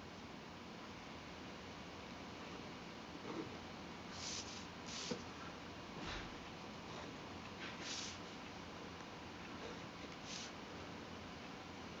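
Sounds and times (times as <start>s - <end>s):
faint room noise: 0.0s - 12.0s
pen drawing on paper: 7.7s - 8.2s.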